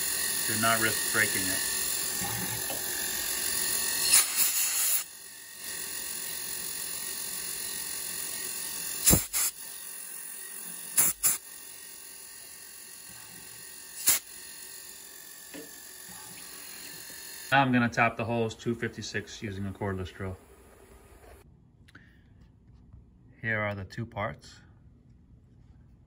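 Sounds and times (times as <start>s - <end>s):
drill cutting into aluminium: 0.0s - 17.7s
mill spindle running: 0.0s - 21.4s
compressed air blasts: 4.1s - 5.1s, 9.0s - 9.6s, 10.9s - 11.4s, 14.0s - 14.3s.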